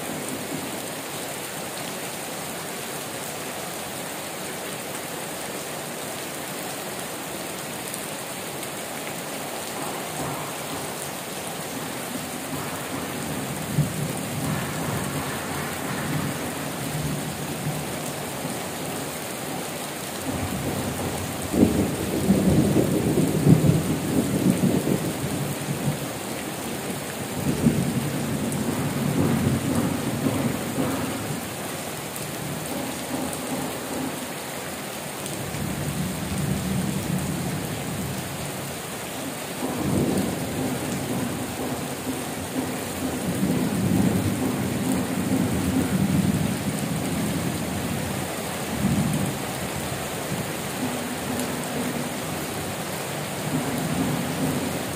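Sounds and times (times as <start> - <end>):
heavy rain falling: 0.0 - 54.9
thunder rumbling: 11.9 - 18.5, 20.2 - 26.1, 27.2 - 31.6, 39.6 - 48.1.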